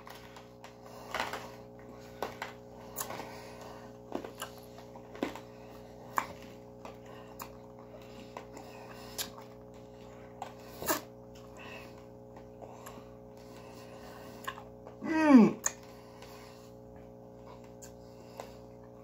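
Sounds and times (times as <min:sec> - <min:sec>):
faint steady hum: 0:00.0 - 0:19.0
mouth sucking candy: 0:10.6 - 0:11.1.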